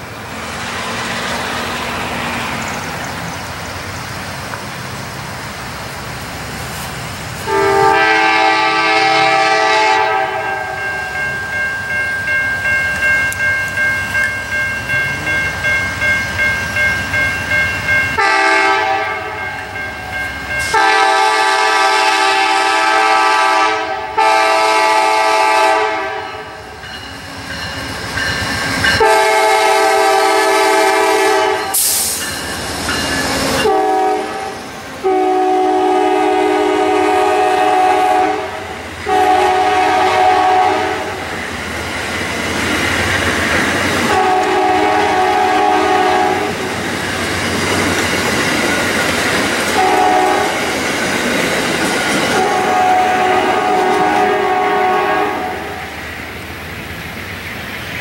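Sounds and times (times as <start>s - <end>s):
passenger cars rolling by: 0.0s - 9.4s, 36.8s - 58.0s
locomotive passing: 0.0s - 58.0s
train horn blasts: 7.4s - 11.0s, 18.2s - 19.6s, 20.6s - 26.7s, 28.9s - 32.2s, 33.5s - 41.3s, 44.1s - 46.6s, 49.7s - 50.7s, 52.3s - 55.9s
crossing bell ringing: 7.5s - 34.5s.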